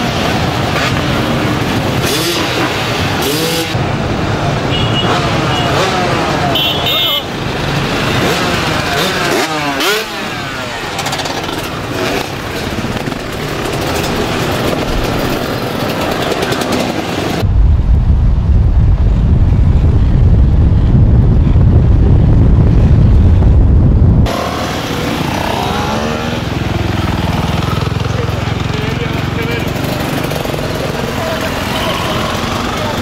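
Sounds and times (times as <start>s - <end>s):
motorcycles revving past: 0.0s - 6.5s, 7.3s - 17.4s, 24.2s - 33.0s
wind buffeting microphone: 17.4s - 24.3s.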